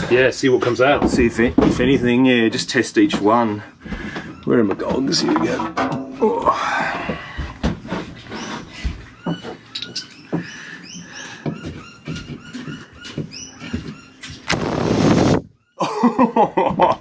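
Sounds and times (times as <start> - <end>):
air blast spraying water: 14.5 - 15.4.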